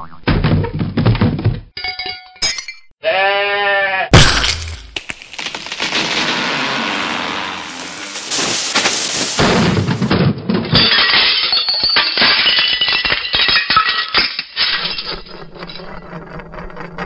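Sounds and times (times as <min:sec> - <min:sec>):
crashing and breaking: 0:04.1 - 0:15.8.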